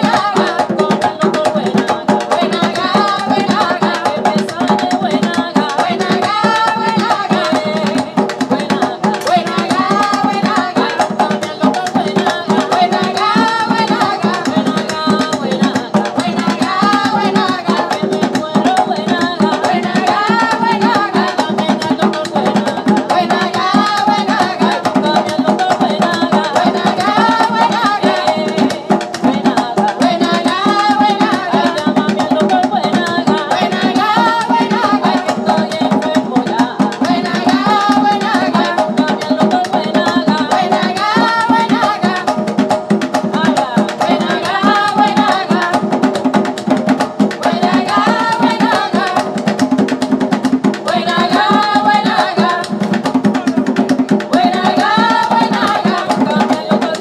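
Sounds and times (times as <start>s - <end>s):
hand drums playing: 0.0s - 57.0s
women singing: 0.0s - 57.0s.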